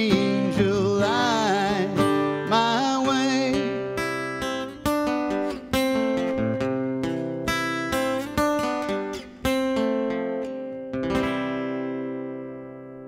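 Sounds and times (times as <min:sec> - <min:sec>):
man singing: 0:00.0 - 0:04.6
acoustic guitar strumming: 0:00.0 - 0:13.0.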